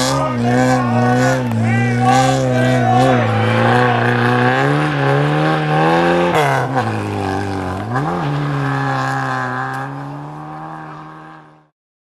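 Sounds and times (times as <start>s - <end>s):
rally car engine at high revs: 0.0s - 11.7s.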